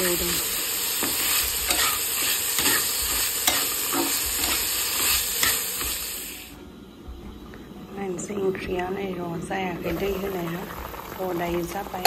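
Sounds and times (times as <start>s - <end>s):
food sizzling in a pan: 0.0s - 6.6s, 9.7s - 12.0s
metal spatula scraping a pan: 1.0s - 6.0s.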